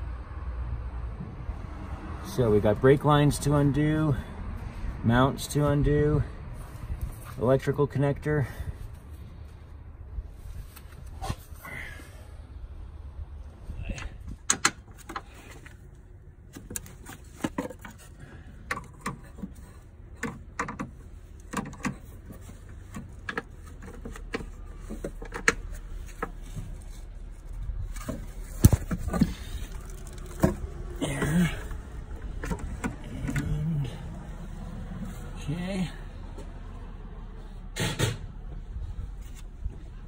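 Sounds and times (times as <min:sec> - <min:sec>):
tools tapping on engine parts: 0:13.9 - 0:15.8, 0:16.5 - 0:26.7, 0:27.9 - 0:33.6.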